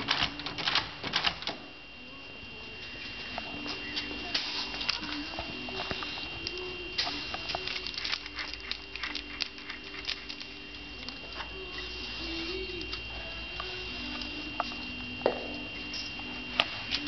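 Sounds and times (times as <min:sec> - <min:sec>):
aerosol spray hissing: 0:11.6 - 0:15.0.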